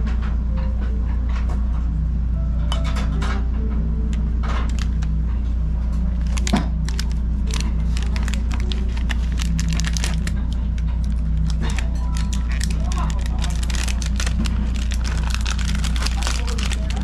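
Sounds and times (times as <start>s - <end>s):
steady low hum: 0.0s - 17.0s
plastic sachet crinkling: 4.6s - 5.1s, 6.1s - 17.0s.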